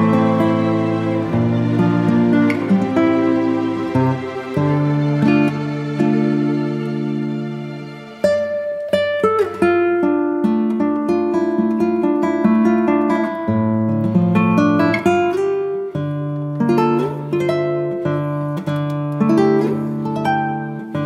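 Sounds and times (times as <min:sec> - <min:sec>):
acoustic guitar picked and strummed: 0:00.0 - 0:21.0.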